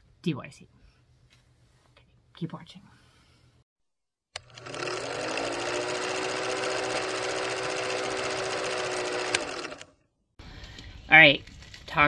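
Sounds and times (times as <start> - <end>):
film projector whirr and clatter: 4.4 - 9.9.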